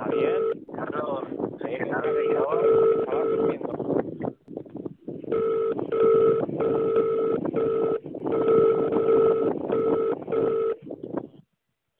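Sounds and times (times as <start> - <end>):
electronic telephone tones beeping: 0.0 - 0.6, 2.0 - 3.6, 5.3 - 10.8.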